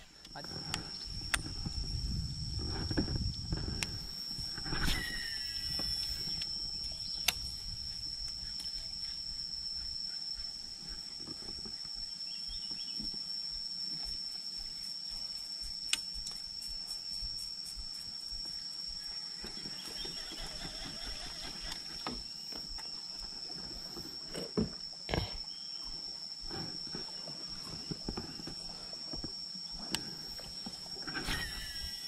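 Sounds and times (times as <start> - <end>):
high-pitched insect drone: 0.0 - 32.0
low wind rumble: 0.6 - 8.2
sharp clicks: 7.2 - 7.4.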